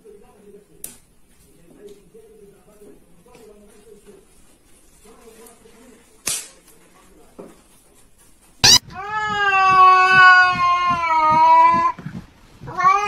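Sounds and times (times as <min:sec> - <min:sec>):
cat yowling: 0:08.6 - 0:12.0, 0:12.6 - 0:13.0.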